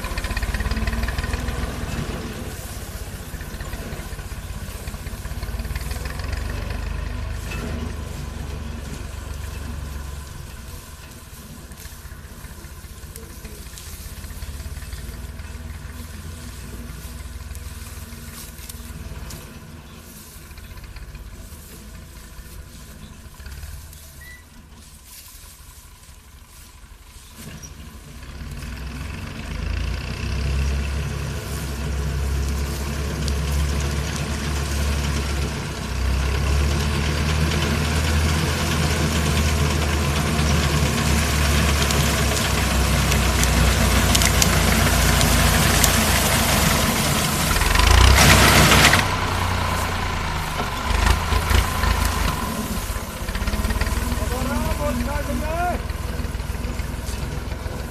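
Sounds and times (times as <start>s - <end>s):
rush of wheat: 0.0s - 57.9s
tractor engine running: 0.0s - 57.9s.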